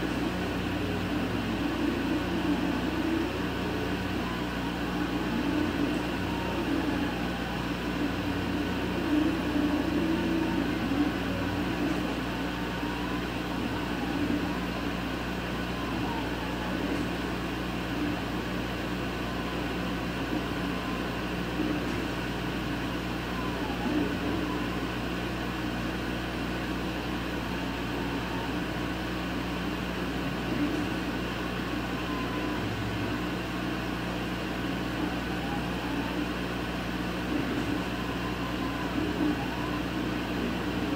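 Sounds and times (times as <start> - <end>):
machine fan hum: 0.0 - 40.9
motor whining tones: 0.0 - 40.9.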